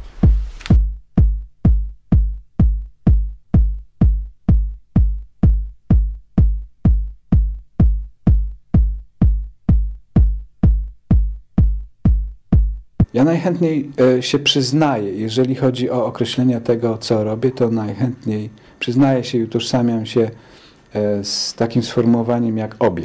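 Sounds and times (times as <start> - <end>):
electronic music with kick drum beat: 0.0 - 13.3.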